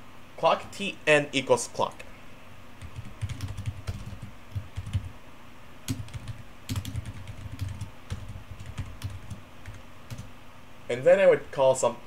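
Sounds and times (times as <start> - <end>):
computer keyboard typing: 2.8 - 5.1, 5.9 - 10.3.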